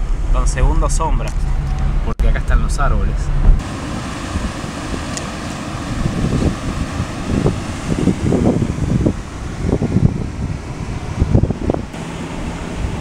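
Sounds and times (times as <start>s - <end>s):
wind buffeting microphone: 0.0s - 13.0s
river water pouring through weir: 3.6s - 13.0s.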